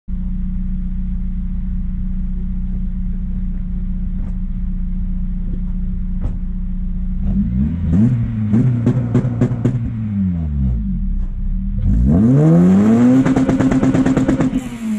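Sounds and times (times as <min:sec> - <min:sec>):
car engine idling and revving: 0:00.1 - 0:14.9
exhaust cracks: 0:02.6 - 0:12.1, 0:13.0 - 0:14.9.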